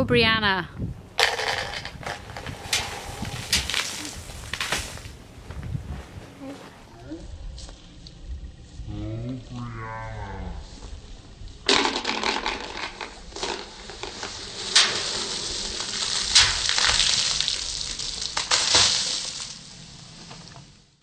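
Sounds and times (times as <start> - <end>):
sharp spatters: 1.6 - 5.2, 14.3 - 19.6
soda fizzing and spraying: 2.0 - 5.2, 13.6 - 20.2.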